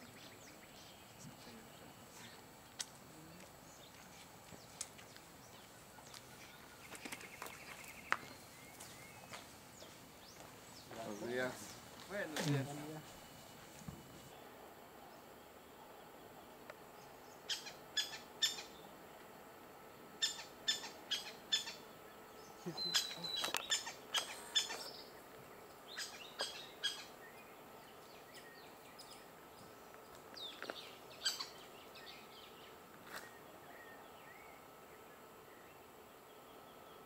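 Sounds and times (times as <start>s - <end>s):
woodpecker calling: 16.9s - 18.8s, 20.2s - 29.3s, 30.0s - 34.6s.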